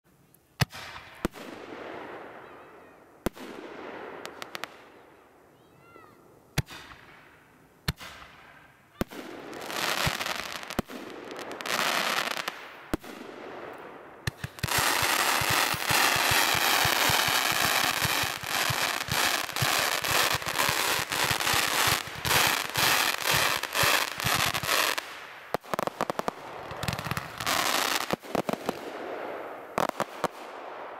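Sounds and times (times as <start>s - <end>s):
firework hiss and crackle: 7.8s - 13.4s, 14.2s - 30.8s.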